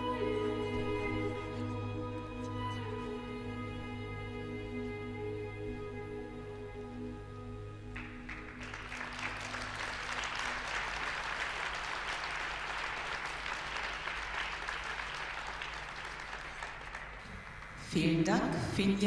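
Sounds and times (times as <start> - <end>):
audience applause: 7.9 - 17.9.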